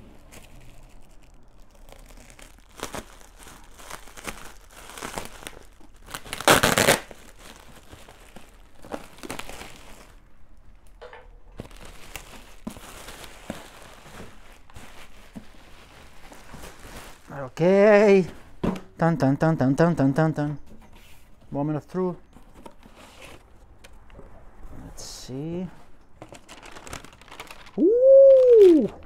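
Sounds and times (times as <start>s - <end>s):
plastic bag crinkling: 0.0s - 10.3s, 11.5s - 17.6s, 26.2s - 29.0s.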